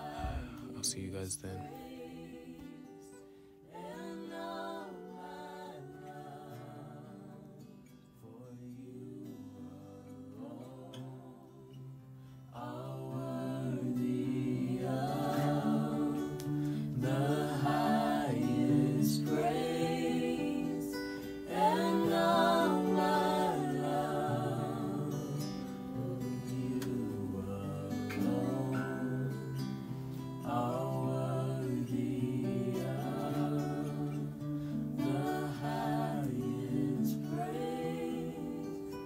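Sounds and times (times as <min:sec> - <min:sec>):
singing with vibrato: 0:00.0 - 0:07.4, 0:12.6 - 0:29.8, 0:35.0 - 0:39.0.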